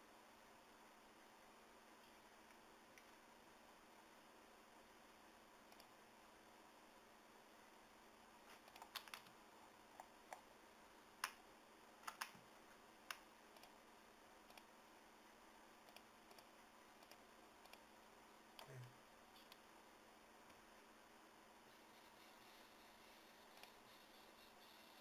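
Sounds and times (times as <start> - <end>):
background hiss: 0.0 - 25.0
computer mouse clicks: 5.7 - 6.0, 8.5 - 10.5, 12.0 - 12.4, 13.0 - 13.8, 14.5 - 14.7, 15.8 - 17.9, 19.4 - 19.6, 23.5 - 24.9.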